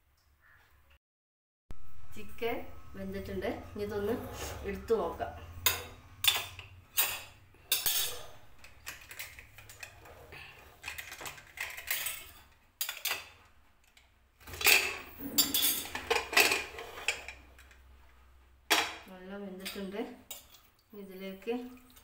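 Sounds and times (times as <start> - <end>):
pot lid clattering and scraping: 14.4 - 17.8.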